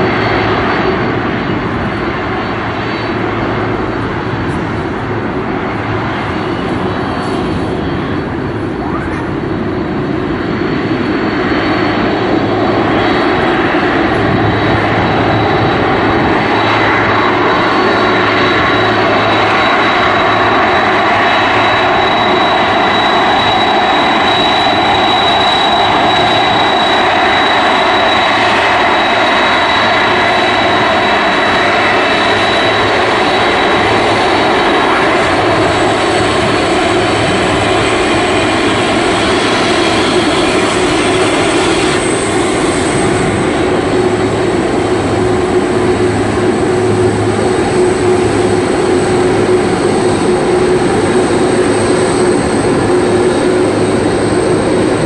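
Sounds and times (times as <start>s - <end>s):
high turbine whine: 0.0s - 55.0s
jet engines roaring: 0.0s - 55.0s.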